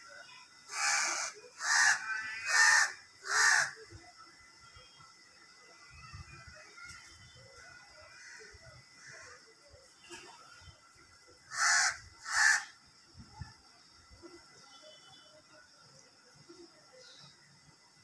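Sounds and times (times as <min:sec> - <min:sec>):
faint outdoor background: 0:00.0 - 0:18.0
harsh animal calls: 0:00.7 - 0:03.8, 0:11.5 - 0:12.7.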